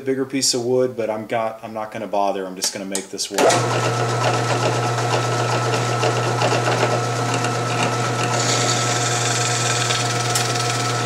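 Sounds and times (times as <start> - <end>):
drill press motor humming: 3.4 - 11.0
drill bit cutting metal: 3.6 - 11.0.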